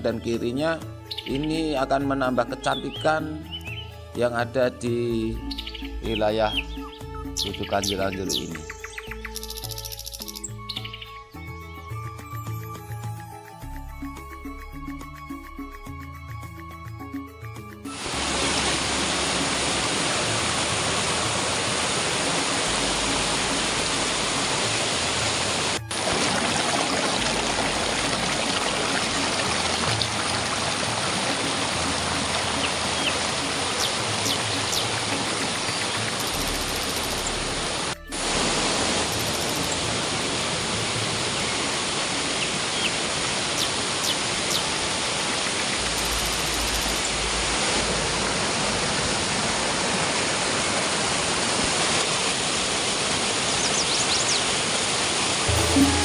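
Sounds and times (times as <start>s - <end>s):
waterfall rushing over boulders: 17.9s - 56.0s.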